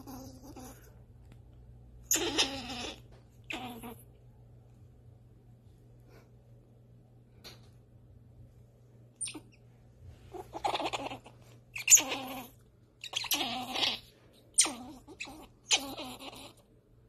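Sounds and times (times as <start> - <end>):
squirrel squealing calls: 2.1 - 4.0, 9.2 - 9.6, 10.3 - 16.6.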